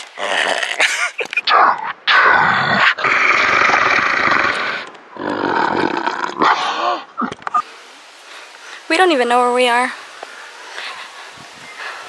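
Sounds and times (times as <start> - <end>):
man growling and snarling: 0.2 - 7.1.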